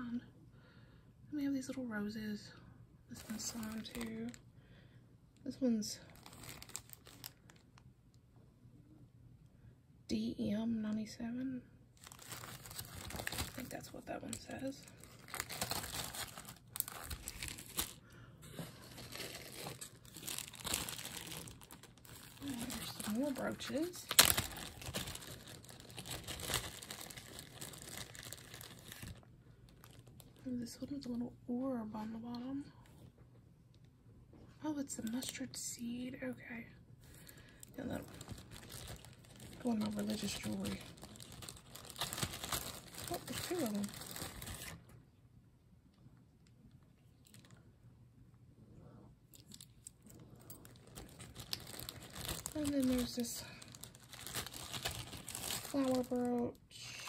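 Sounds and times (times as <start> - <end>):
plastic bag crinkling: 3.2 - 4.4, 5.9 - 7.7, 12.0 - 30.4, 37.0 - 45.0, 47.2 - 47.6, 49.4 - 56.6.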